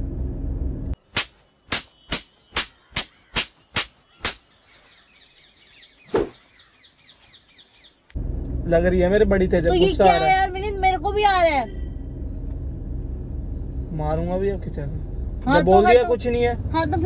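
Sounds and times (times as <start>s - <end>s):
birds chirping: 1.0s - 8.2s
single thud: 6.1s - 6.4s.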